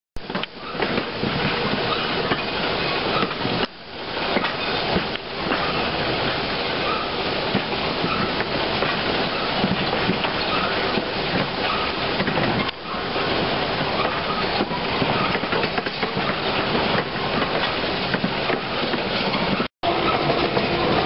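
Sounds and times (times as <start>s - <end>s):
train wheels rolling on rails: 0.2s - 21.0s.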